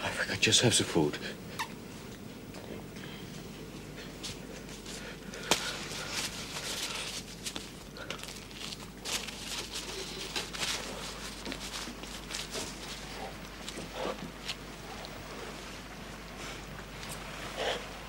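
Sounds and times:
paper wrapping crackling: 4.3s - 14.7s.

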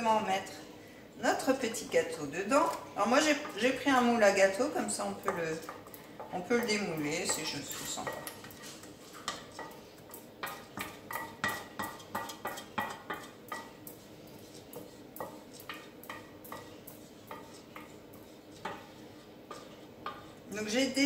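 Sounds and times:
spatula scraping metal saucepan: 1.7s - 21.0s.

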